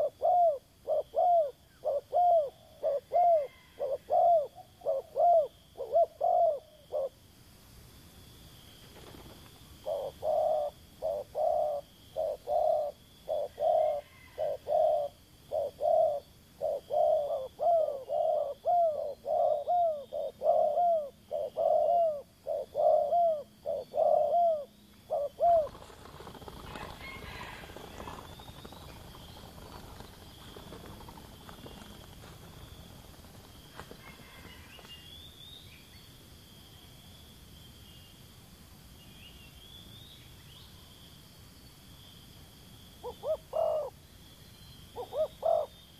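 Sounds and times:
dove cooing: 0.0 - 7.2, 9.8 - 34.9, 43.0 - 44.0, 45.0 - 45.8.

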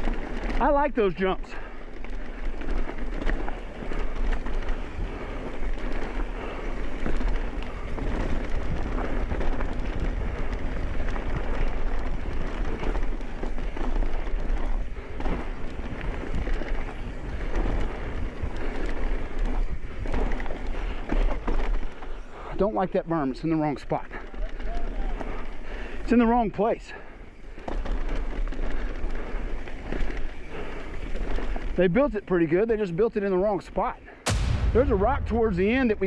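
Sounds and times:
bike clattering over bumps: 0.0 - 32.2
wind buffeting microphone: 2.2 - 12.8, 14.7 - 21.0.

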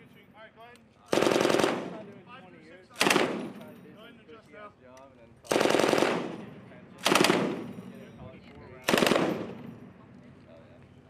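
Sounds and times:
machine gun firing bursts: 1.1 - 2.1, 3.0 - 3.6, 5.5 - 7.9, 8.8 - 9.7.

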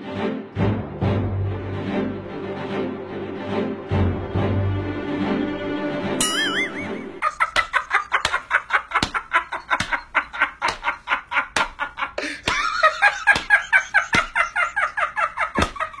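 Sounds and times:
person laughing: 6.2 - 16.0
sharp clap: 7.5 - 11.8, 12.5 - 14.4.

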